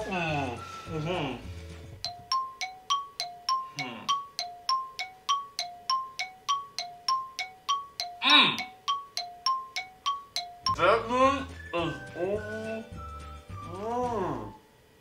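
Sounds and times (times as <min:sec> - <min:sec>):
bell-like two-note music: 0:02.0 - 0:13.8.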